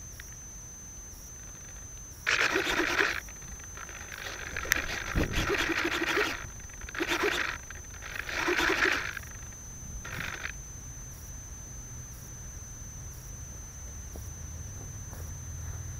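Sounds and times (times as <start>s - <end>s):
steady high-pitched whine: 0.0s - 15.9s
short rough noises: 1.4s - 10.6s.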